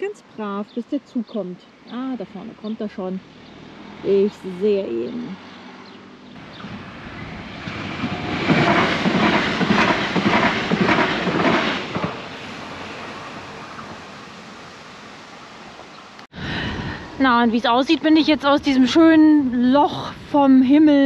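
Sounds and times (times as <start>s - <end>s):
train wheels clattering over rails: 6.4s - 12.4s.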